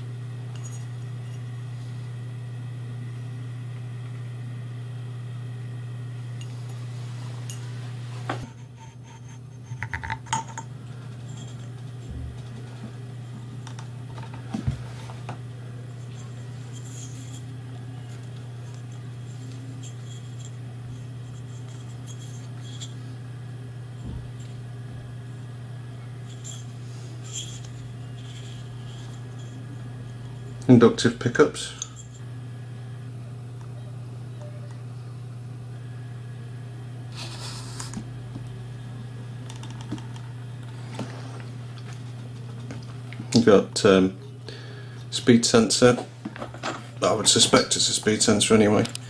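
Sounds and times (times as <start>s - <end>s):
low hum: 0.0s - 43.2s
metal parts clinking and scraping: 16.0s - 23.0s, 26.2s - 30.6s.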